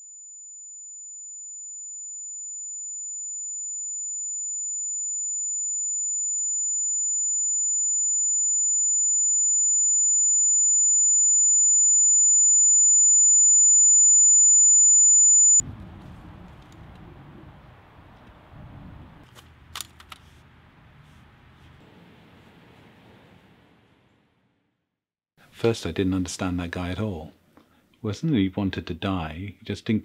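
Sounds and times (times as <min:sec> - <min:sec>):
high-pitched ear-ringing tone: 0:00.0 - 0:15.6.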